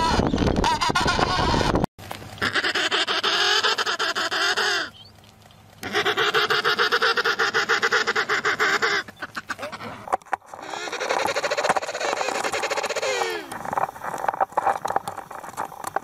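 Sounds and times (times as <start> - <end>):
penguin calling: 2.4 - 5.0, 5.8 - 13.7.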